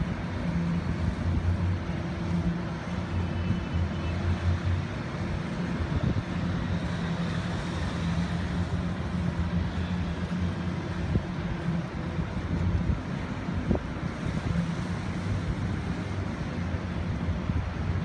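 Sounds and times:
yacht engines droning: 0.0 - 18.0.

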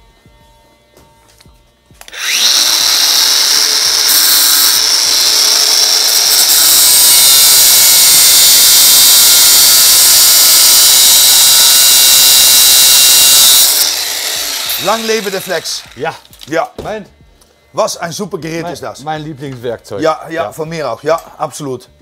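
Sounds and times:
angle grinder cutting metal: 2.0 - 16.6.

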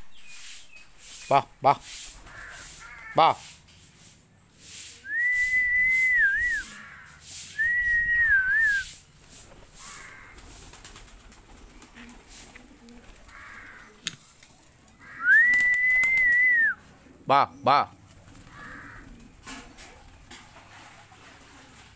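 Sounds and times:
faint bird sounds: 0.0 - 21.8
person whistling long notes: 5.0 - 6.7, 7.6 - 8.9, 15.2 - 16.8.

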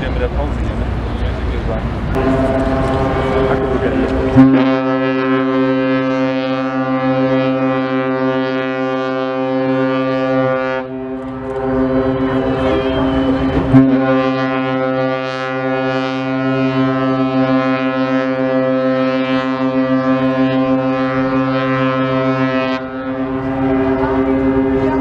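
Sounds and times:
ship horn blast: 0.9 - 25.0
deeper horn tone: 2.1 - 25.0.

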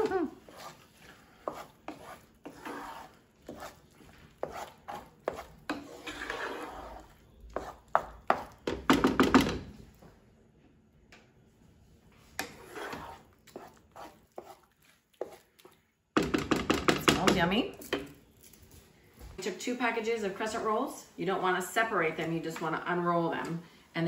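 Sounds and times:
spatula scraping a pan: 0.0 - 8.6, 12.3 - 15.5.

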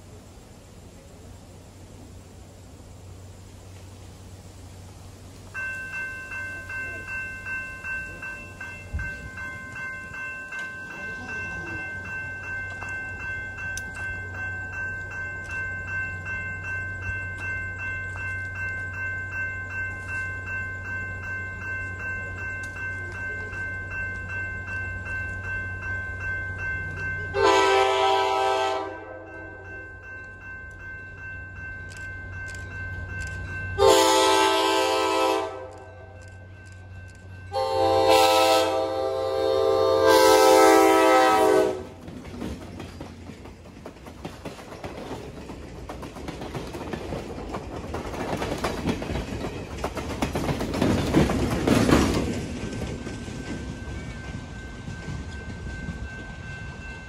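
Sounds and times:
crossing bell ringing: 5.4 - 43.9, 48.8 - 57.0
locomotive air horn: 27.4 - 29.3, 33.8 - 36.2, 37.5 - 42.0.

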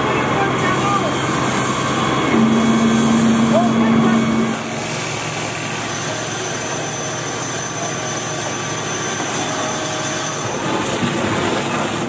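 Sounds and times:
fire hose streams rushing: 0.0 - 12.0
faint high whines: 1.0 - 5.8.

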